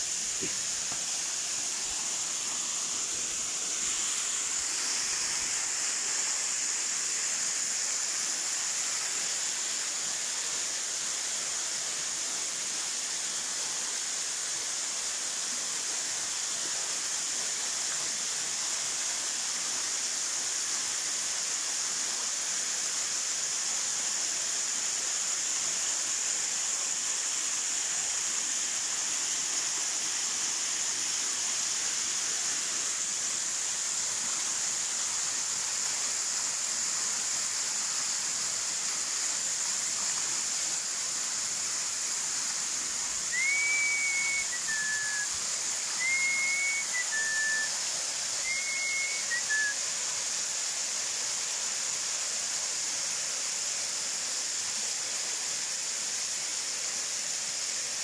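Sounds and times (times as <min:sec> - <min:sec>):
waterfall rushing: 0:00.0 - 0:15.2, 0:24.6 - 0:56.7
rising and dropping whistle: 0:43.3 - 0:47.8, 0:48.4 - 0:49.8.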